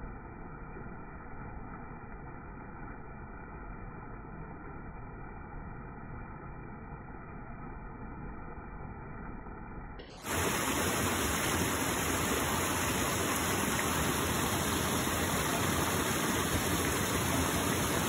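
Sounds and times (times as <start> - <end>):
waterfall rushing: 10.2 - 18.0.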